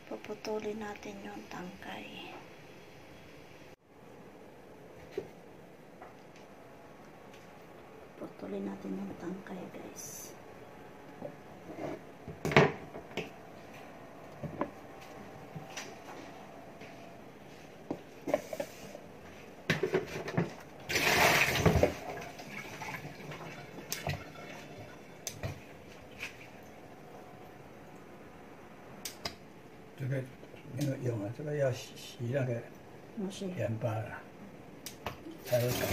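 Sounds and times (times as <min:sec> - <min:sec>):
tap water running: 0:20.8 - 0:26.7, 0:35.3 - 0:35.9.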